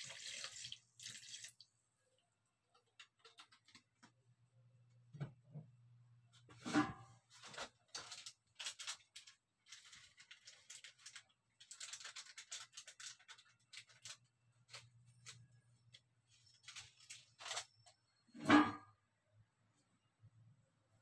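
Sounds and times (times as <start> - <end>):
rustling and crinkling: 6.3 - 18.0.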